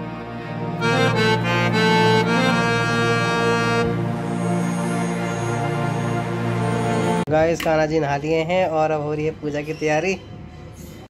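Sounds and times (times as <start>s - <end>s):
background music with long held notes: 0.0s - 7.3s.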